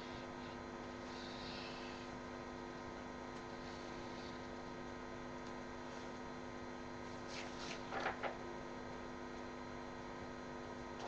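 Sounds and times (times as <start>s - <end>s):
electrical hum: 0.0s - 11.0s
paper sheet rustling: 7.2s - 8.4s.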